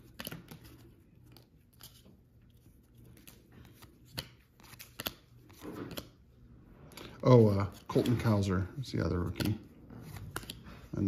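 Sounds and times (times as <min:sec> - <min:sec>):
trading cards being thumbed through: 0:02.9 - 0:06.2, 0:09.2 - 0:10.9.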